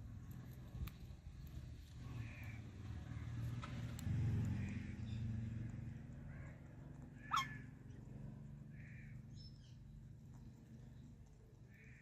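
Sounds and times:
parakeet squawk: 0:07.2 - 0:07.7.

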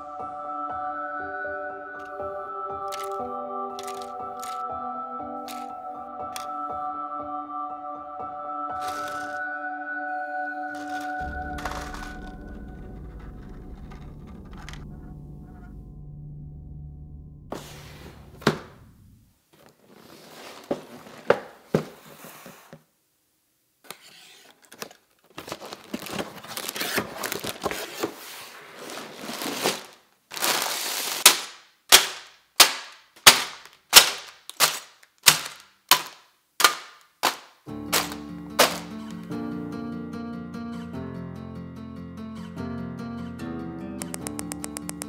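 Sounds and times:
bags smacking onto table: 0:03.8 - 0:04.6, 0:08.8 - 0:09.4, 0:29.1 - 0:39.2
plastic bags rustling and crinkling: 0:03.8 - 0:04.6, 0:08.8 - 0:09.4, 0:10.7 - 0:12.2, 0:19.5 - 0:22.0, 0:24.8 - 0:39.2
cardboard box opened: 0:08.8 - 0:09.4, 0:19.8 - 0:22.6, 0:23.9 - 0:31.2.

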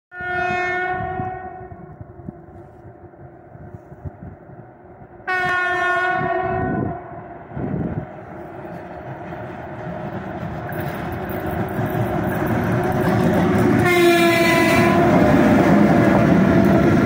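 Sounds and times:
electric locomotive horn blasts: 0:00.1 - 0:02.0, 0:05.2 - 0:07.3, 0:13.8 - 0:15.5
low rumble of train: 0:00.1 - 0:17.0.

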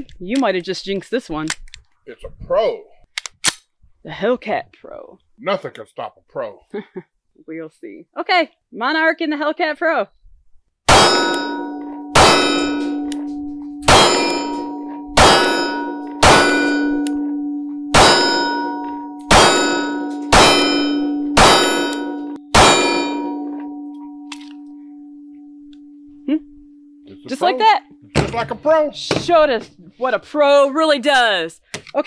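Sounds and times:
steel target clanging: 0:10.9 - 0:25.5.

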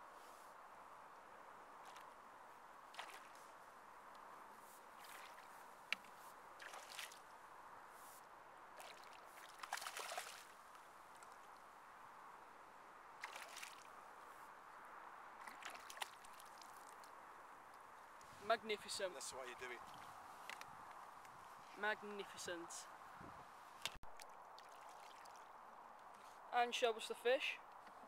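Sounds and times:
fish splashing at water surface: 0:08.8 - 0:10.6.

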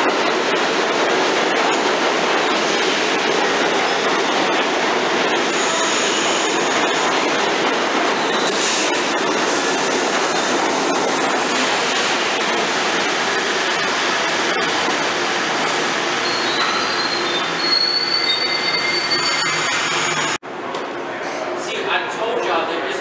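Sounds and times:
subway train wheels rumbling: 0:00.0 - 0:23.0
high-pitched wheel squeals: 0:16.2 - 0:20.4.

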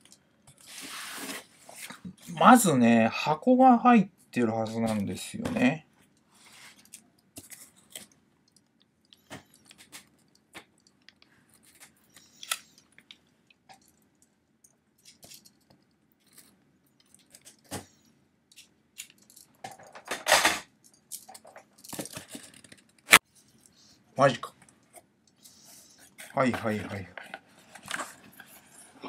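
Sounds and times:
cardboard scraping: 0:00.6 - 0:02.0.

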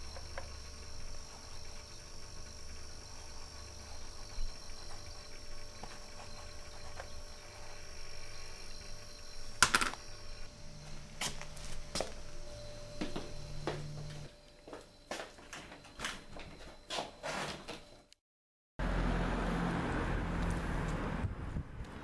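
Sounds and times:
faint steady hum: 0:00.0 - 0:16.7
footsteps: 0:10.8 - 0:16.2.

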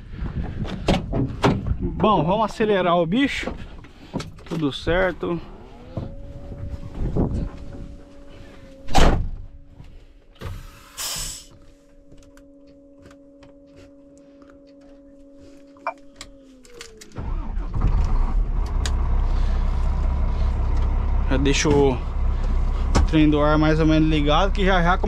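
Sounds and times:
knocks and clunks: 0:00.2 - 0:02.5, 0:03.2 - 0:04.9, 0:05.7 - 0:08.2, 0:22.9 - 0:23.2
diesel truck engine running: 0:01.3 - 0:25.0
starter motor electric whine: 0:04.5 - 0:24.6.

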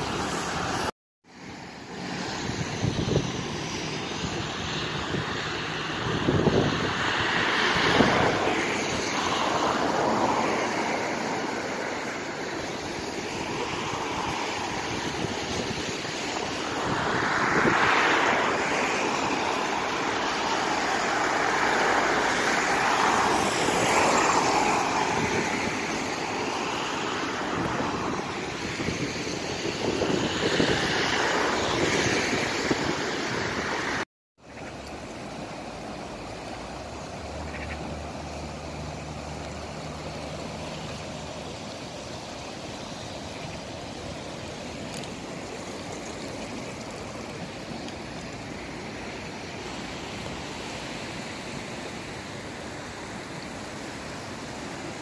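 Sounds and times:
fast floodwater rushing: 0:00.0 - 0:55.0
wind on microphone: 0:02.0 - 0:34.0.

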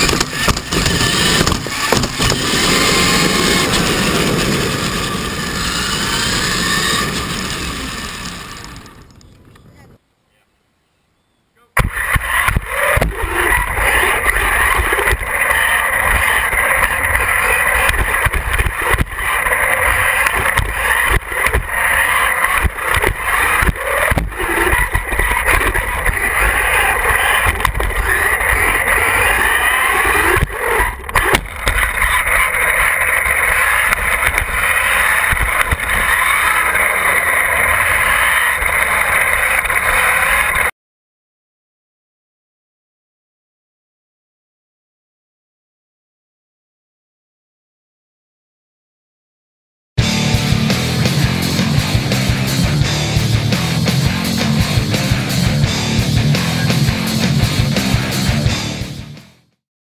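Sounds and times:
chassis knocks and rattles: 0:00.0 - 0:02.7
toy truck motor whining: 0:00.0 - 0:09.4, 0:11.8 - 0:40.7.

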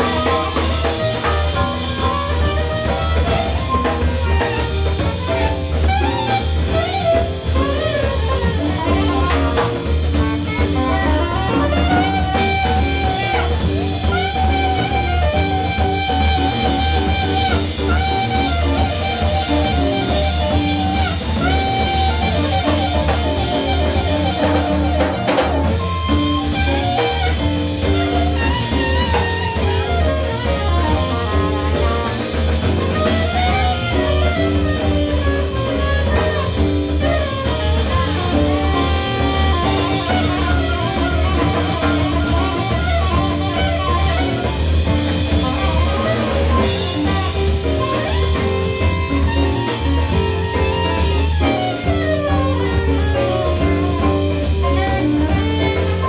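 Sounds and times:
congas: 0:00.0 - 0:56.0
drum kit: 0:00.0 - 0:56.0
piano: 0:00.0 - 0:56.0
soprano saxophone runs: 0:00.0 - 0:56.0.

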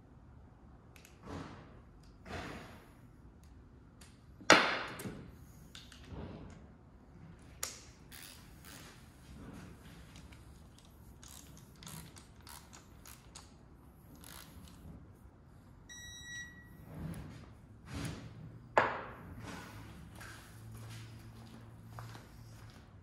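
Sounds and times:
torque wrench clicks and taps: 0:10.8 - 0:13.5
electronic beep: 0:15.9 - 0:16.7.

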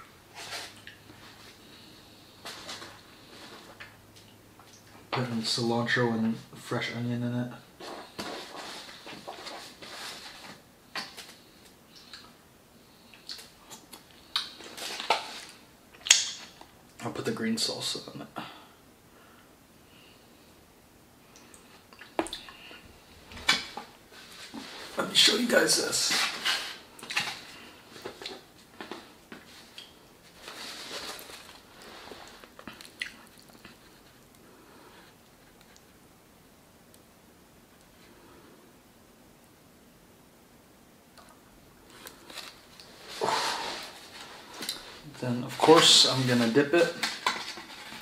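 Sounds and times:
soft rustle: 0:00.2 - 0:04.8, 0:07.8 - 0:11.8, 0:21.5 - 0:36.0, 0:41.8 - 0:48.0
mouth clicks and smacks: 0:13.1 - 0:14.6, 0:32.6 - 0:33.8.

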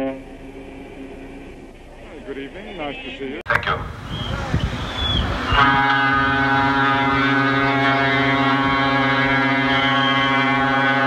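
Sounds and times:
ship's horn long low blast: 0:00.0 - 0:01.7, 0:03.9 - 0:11.0.

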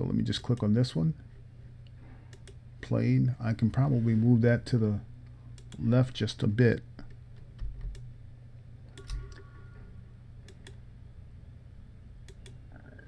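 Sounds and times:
steady low hum: 0:00.0 - 0:13.0
computer mouse clicks: 0:02.3 - 0:02.6, 0:08.9 - 0:09.4, 0:10.5 - 0:10.8, 0:12.2 - 0:12.6.

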